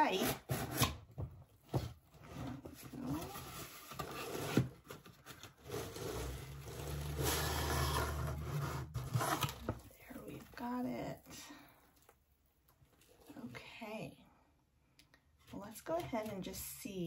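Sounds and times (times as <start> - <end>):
rubbing and scraping in cardboard box: 1.8 - 9.8.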